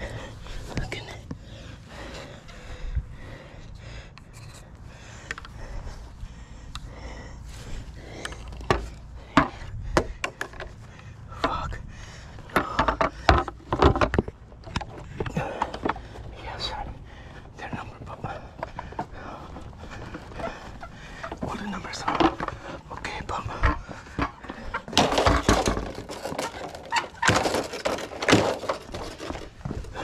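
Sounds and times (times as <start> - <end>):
sharp knocks and clicks: 8.2 - 10.8, 12.5 - 16.2
vinyl railing rubbing and clattering: 18.4 - 30.0.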